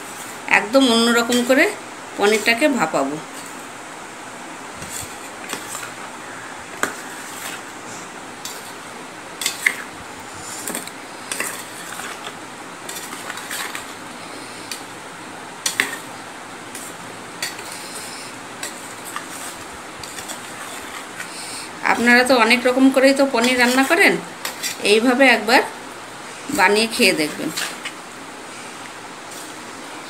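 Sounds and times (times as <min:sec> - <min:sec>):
background hiss: 0:00.0 - 0:23.4
metal spoon scraping steel bowl: 0:17.4 - 0:21.3, 0:23.3 - 0:25.0.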